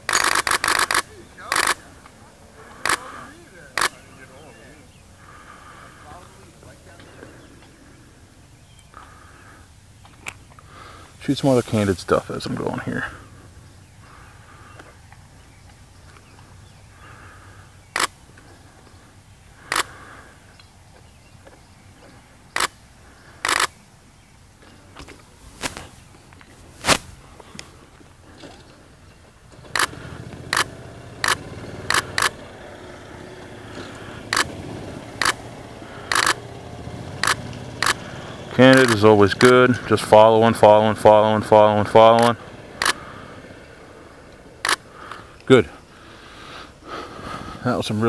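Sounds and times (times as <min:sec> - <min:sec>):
camera shutter click: 0:00.0 - 0:01.8, 0:02.8 - 0:03.1, 0:03.8 - 0:04.0, 0:18.0 - 0:18.2, 0:19.7 - 0:19.9, 0:23.4 - 0:23.7, 0:29.7 - 0:29.9, 0:30.5 - 0:32.4, 0:35.2 - 0:35.4, 0:36.1 - 0:36.4, 0:37.2 - 0:38.0, 0:38.7 - 0:39.5, 0:42.2 - 0:43.0, 0:44.6 - 0:44.8
faint outdoor background: 0:00.0 - 0:48.0.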